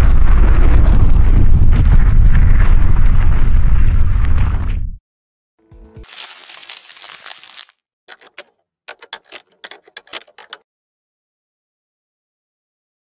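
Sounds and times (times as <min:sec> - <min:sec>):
sharp clicks: 0:08.1 - 0:10.6.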